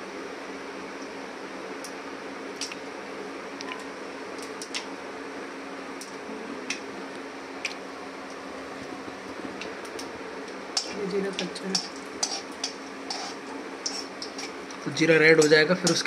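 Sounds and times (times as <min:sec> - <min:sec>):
steady hum and hiss: 0:00.0 - 0:16.0
seeds crackling in hot oil: 0:05.9 - 0:16.0.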